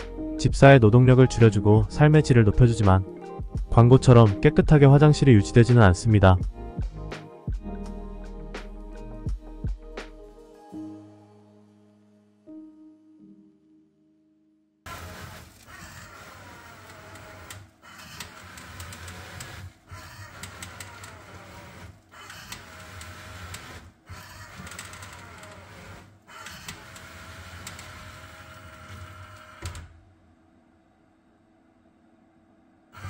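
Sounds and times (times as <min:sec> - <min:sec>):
litter box motor running: 0:14.9 - 0:29.9.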